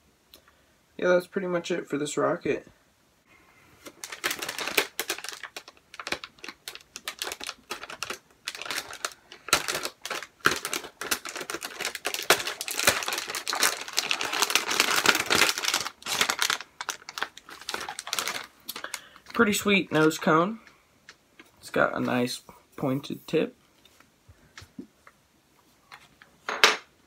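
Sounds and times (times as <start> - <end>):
plastic packaging crinkling: 3.8 - 22.1.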